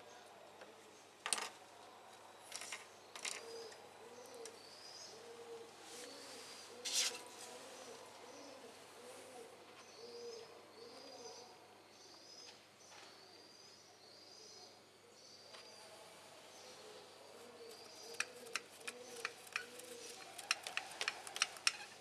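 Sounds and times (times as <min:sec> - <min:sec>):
dove cooing: 0:03.2 - 0:11.5, 0:16.6 - 0:22.0.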